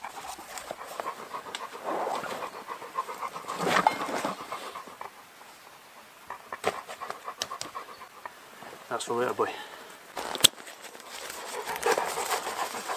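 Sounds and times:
dog panting: 0:00.0 - 0:08.4, 0:10.8 - 0:12.9.

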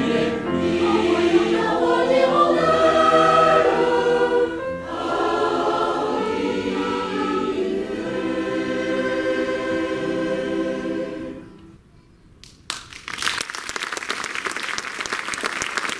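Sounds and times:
choir holding a chord: 0:00.0 - 0:11.8
audience applause: 0:12.7 - 0:15.9.

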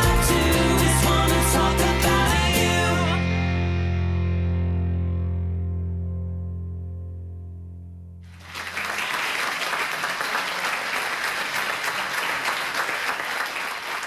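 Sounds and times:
audience applauding: 0:08.3 - 0:14.0.

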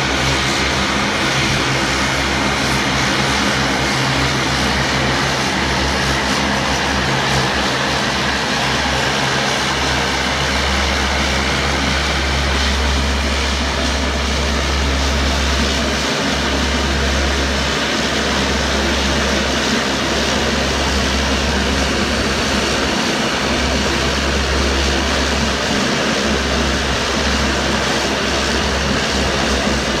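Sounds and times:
turboprop engines droning: 0:00.0 - 0:30.0.

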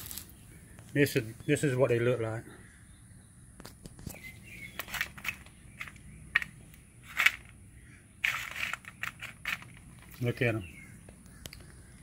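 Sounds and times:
fries rattling on a metal sheet: 0:08.2 - 0:10.3.

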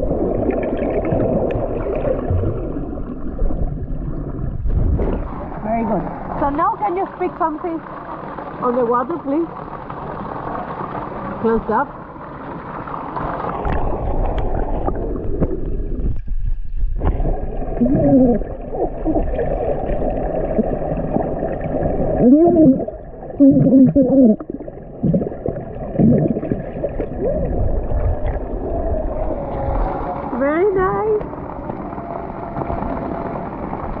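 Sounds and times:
underwater water rumble: 0:00.0 - 0:34.0
person vocalising underwater: 0:17.6 - 0:21.2, 0:22.0 - 0:31.3.

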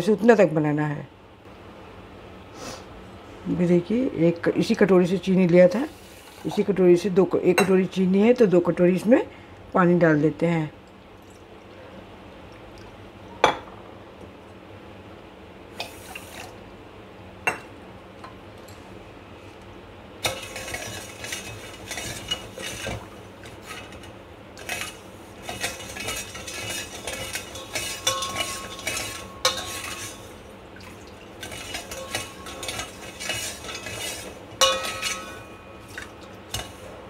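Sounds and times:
spoon scraping a steel pot: 0:20.2 - 0:30.4, 0:31.4 - 0:36.8.

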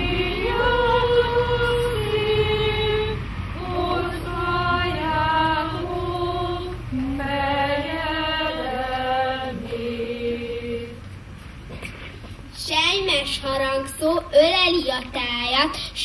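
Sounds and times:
voices singing slow melody: 0:00.0 - 0:11.7.

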